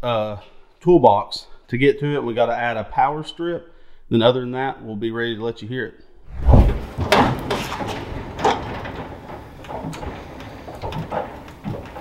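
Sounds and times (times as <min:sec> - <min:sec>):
knocks of tool chest: 0:06.6 - 0:12.0
tool chest rolling on casters: 0:06.8 - 0:12.0.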